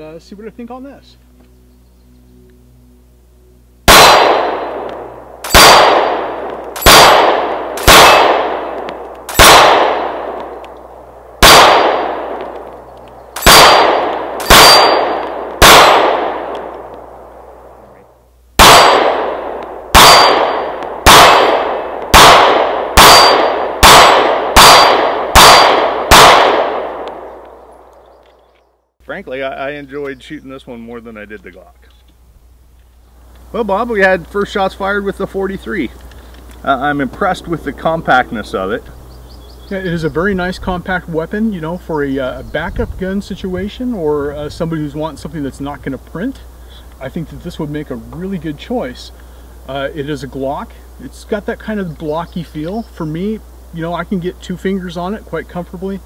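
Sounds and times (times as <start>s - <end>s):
pistol shots: 3.9s - 12.8s, 13.4s - 17.8s, 18.6s - 27.9s.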